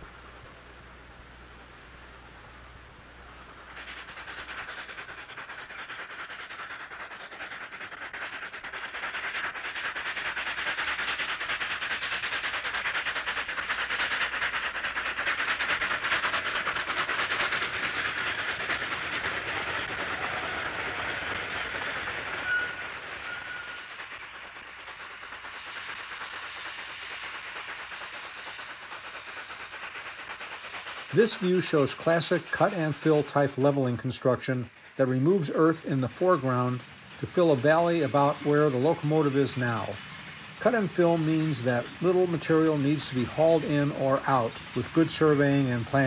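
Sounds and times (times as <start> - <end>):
steam locomotive exhaust beats: 0.0 - 46.0
train clatter: 0.0 - 46.0.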